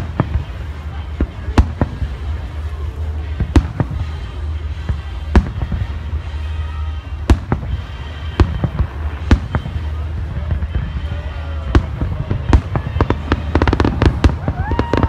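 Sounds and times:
firework shells booming: 7.1s - 15.0s.

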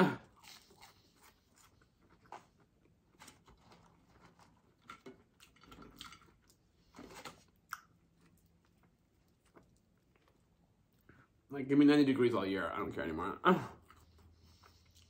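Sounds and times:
chewing and mouth sounds: 0.1s - 11.4s.

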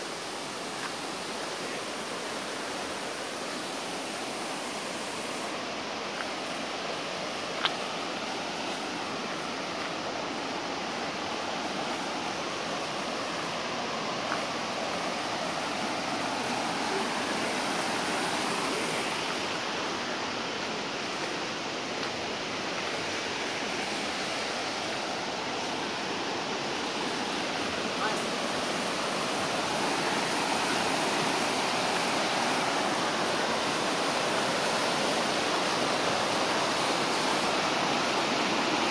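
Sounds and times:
creek rushing over stones: 0.0s - 38.9s.

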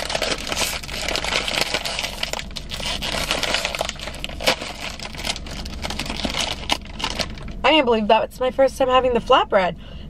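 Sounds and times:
plastic chip bag crinkling: 0.0s - 7.6s.

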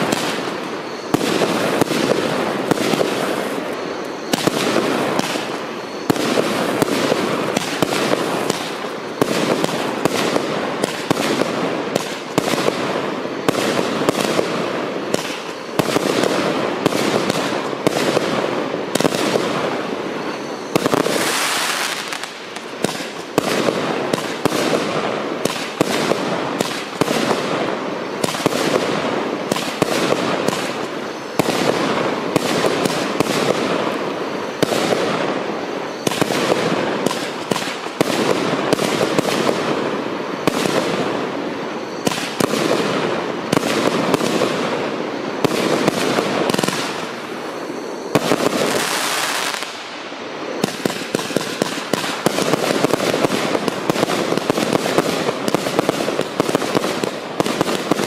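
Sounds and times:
firework hissing rush: 0.0s - 16.2s, 19.2s - 24.9s
firework launch and burst bangs: 4.3s - 19.9s, 20.7s - 34.0s.

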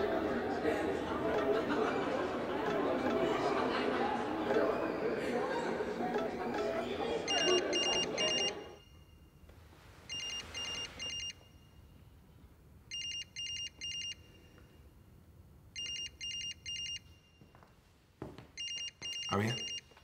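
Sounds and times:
phone ringing high electronic beeps: 1.3s - 3.7s, 6.1s - 9.0s, 10.1s - 11.6s, 15.8s - 17.0s.

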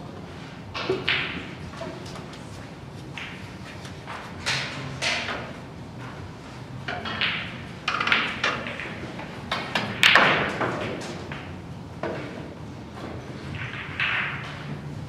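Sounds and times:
cue tip striking ball: 0.8s - 2.1s, 6.9s - 12.4s, 13.6s - 14.7s
snooker balls clicking: 0.8s - 5.6s, 6.8s - 14.9s.

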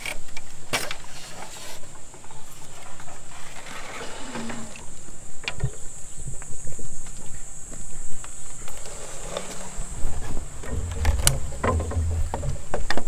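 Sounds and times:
bamboo poles knocking and rattling: 8.6s - 13.0s
gate creaking: 8.8s - 13.0s.

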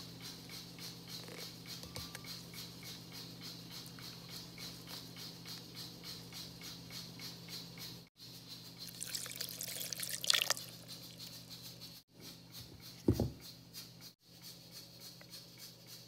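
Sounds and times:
water pouring into glass jar: 8.8s - 11.3s.

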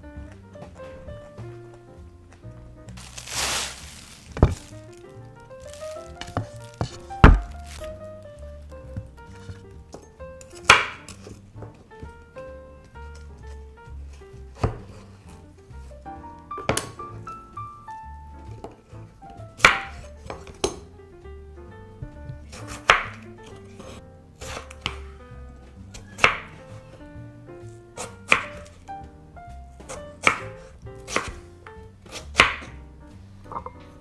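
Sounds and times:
knife chopping on wooden board: 10.6s - 11.4s, 14.6s - 15.0s, 16.6s - 17.0s, 22.5s - 25.0s, 25.9s - 26.6s, 28.0s - 28.8s, 29.8s - 31.4s, 32.1s - 32.8s.

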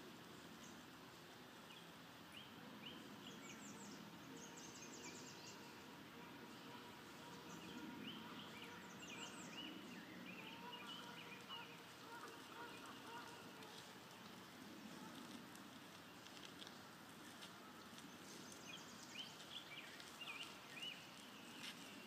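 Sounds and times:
soft outdoor hush: 0.0s - 22.0s
faint birdsong: 1.6s - 22.0s.

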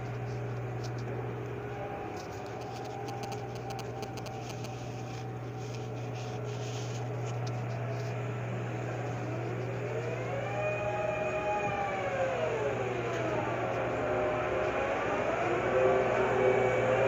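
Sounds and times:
crane machinery hum: 0.0s - 17.0s
rising whine: 0.0s - 17.0s.

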